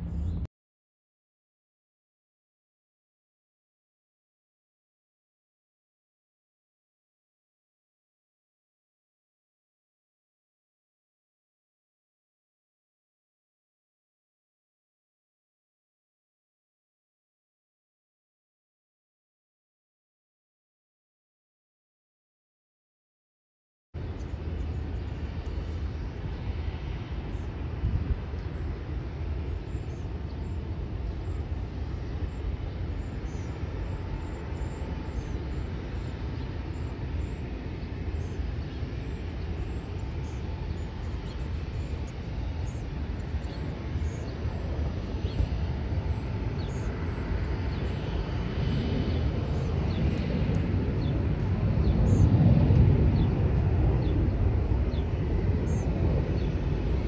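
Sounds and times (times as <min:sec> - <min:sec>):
jet engines rumbling: 0:00.0 - 0:00.5, 0:24.0 - 0:57.0.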